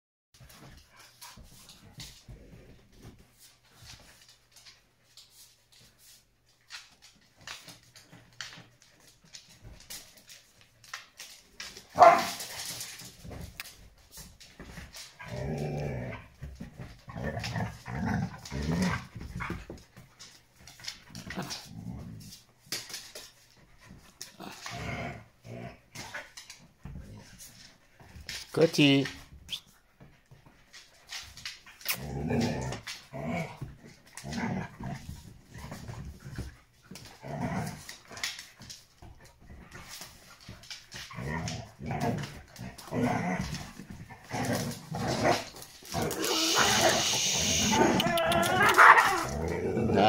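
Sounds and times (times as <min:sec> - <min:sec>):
dogs barking: 0:12.0 - 0:12.4
dogs growling: 0:14.6 - 0:19.8, 0:20.7 - 0:22.4, 0:24.2 - 0:27.4, 0:31.8 - 0:38.4, 0:40.9 - 0:50.0.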